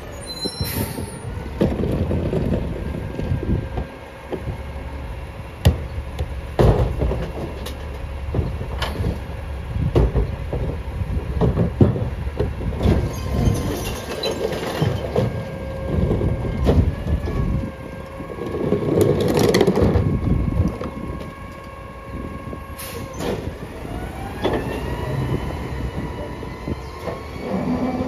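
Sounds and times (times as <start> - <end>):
truck engine rumble: 0.0 - 28.0
recycling clattering in hopper: 0.6 - 4.7, 5.6 - 28.0
crushing noise: 10.0 - 21.8.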